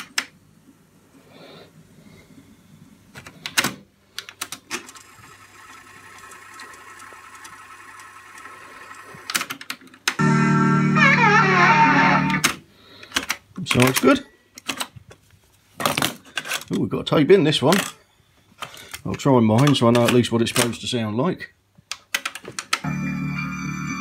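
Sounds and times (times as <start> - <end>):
music from tape: 10.2 - 12.4, 22.9 - 24.0
tape hiss: 10.2 - 12.9, 22.8 - 24.0.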